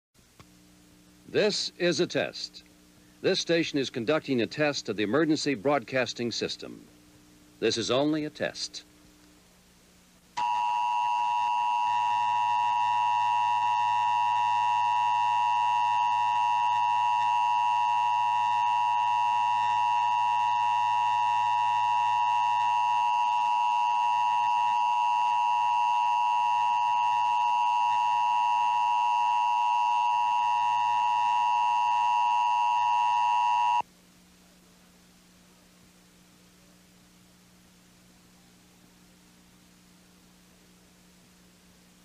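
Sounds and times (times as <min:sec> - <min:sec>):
faint hiss: 0:00.2 - 0:10.4, 0:33.8 - 0:42.0
two-tone alert signal: 0:10.4 - 0:33.8.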